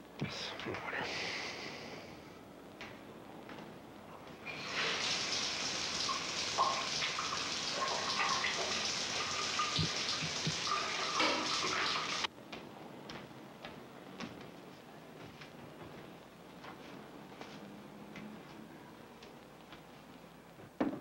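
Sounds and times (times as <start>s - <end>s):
shower running: 4.4s - 12.3s.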